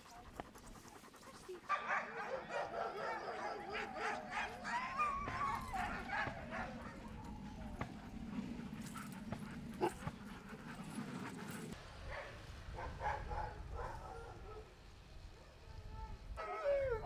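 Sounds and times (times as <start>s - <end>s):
huskies yelping and whining: 0.8s - 11.8s
howl-like cries: 1.7s - 11.7s, 15.5s - 17.0s.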